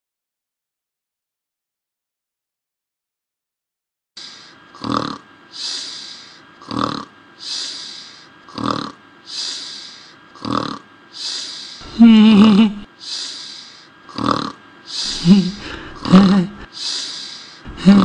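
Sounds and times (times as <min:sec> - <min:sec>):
cartoon snoring: 0:04.2 - 0:18.0
rattling wavering snort: 0:04.2 - 0:18.0.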